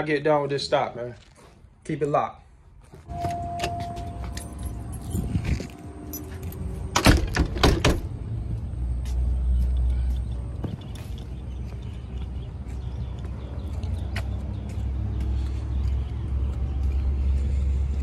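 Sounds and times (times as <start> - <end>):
metal door latch clicking: 6.9 - 8.1.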